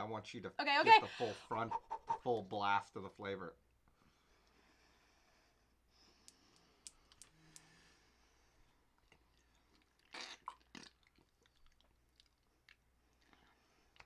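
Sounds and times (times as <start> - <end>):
quiet chewing and crunching: 8.6 - 14.0.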